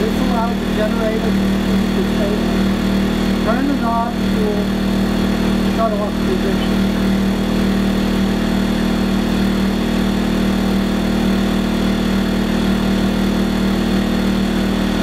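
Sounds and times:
generator engine running: 0:00.0 - 0:15.0.

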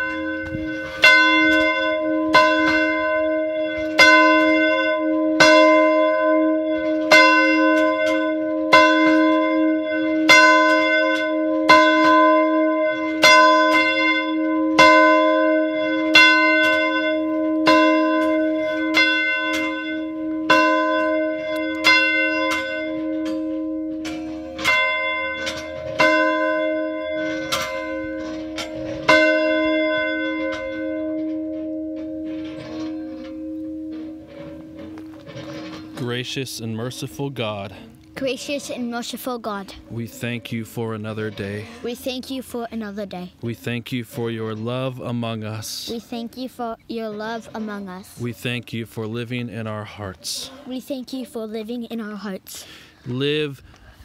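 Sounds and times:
church bell tolling: 0:00.0 - 0:42.0.

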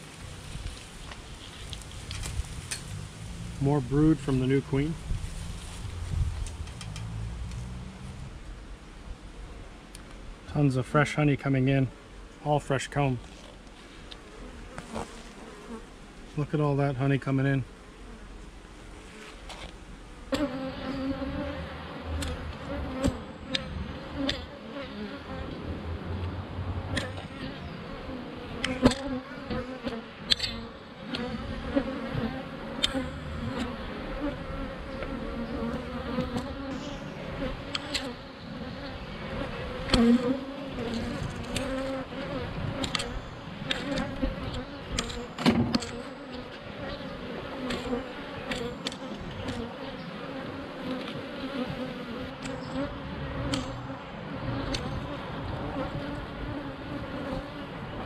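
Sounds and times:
bees humming: 0:13.8 - 0:58.0.

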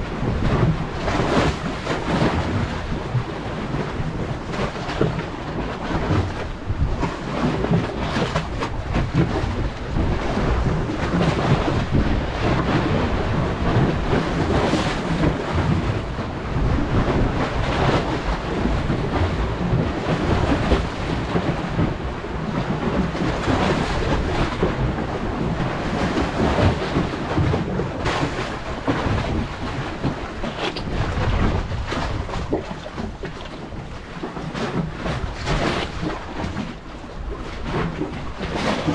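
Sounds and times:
wind buffeting the microphone: 0:00.0 - 0:38.9.

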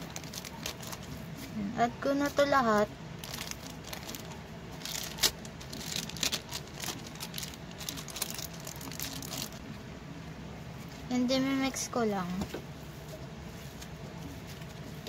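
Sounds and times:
plastic wrapper crinkling: 0:00.0 - 0:01.3, 0:03.2 - 0:09.6.

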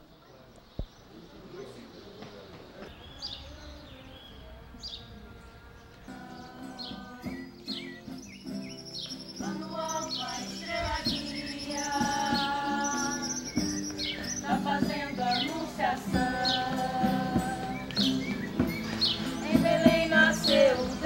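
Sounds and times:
birds chirping: 0:00.0 - 0:21.0
stringed instruments playing: 0:02.9 - 0:21.0.

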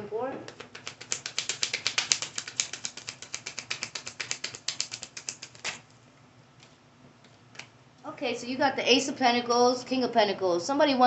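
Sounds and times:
cards being shuffled: 0:00.5 - 0:06.0.

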